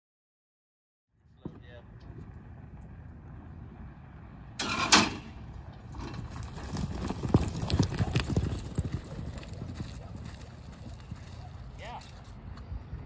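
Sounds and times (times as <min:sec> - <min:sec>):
galloping hoofbeats in dirt: 0:05.5 - 0:13.0.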